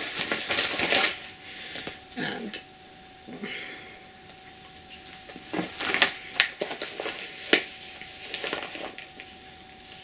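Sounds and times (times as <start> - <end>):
rustling and scraping materials: 0.0 - 2.0, 4.9 - 10.0.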